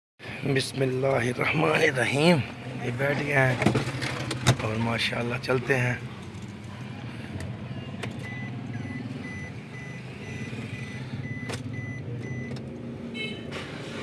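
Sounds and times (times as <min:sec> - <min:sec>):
car engine running: 0:01.4 - 0:14.0
reversing warning beeps: 0:08.2 - 0:12.6.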